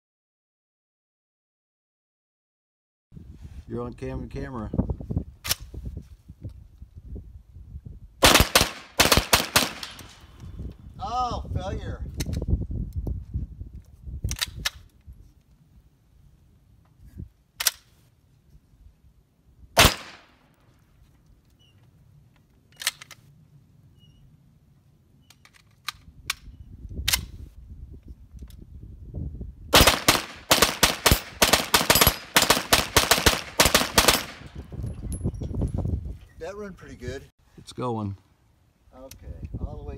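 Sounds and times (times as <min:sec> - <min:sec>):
gunshots: 0:08.2 - 0:10.2, 0:19.8 - 0:20.4, 0:29.7 - 0:34.5.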